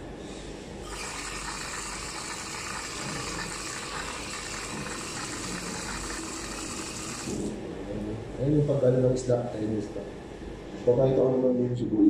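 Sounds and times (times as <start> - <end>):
kitchen tap turned on: 0.9 - 7.6
water running into sink: 0.9 - 7.6.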